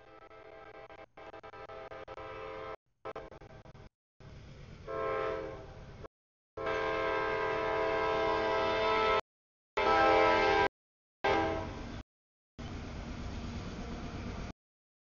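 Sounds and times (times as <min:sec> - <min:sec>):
train air horn blowing: 0:00.0 - 0:03.4, 0:04.8 - 0:05.8, 0:06.6 - 0:09.2, 0:09.8 - 0:11.9.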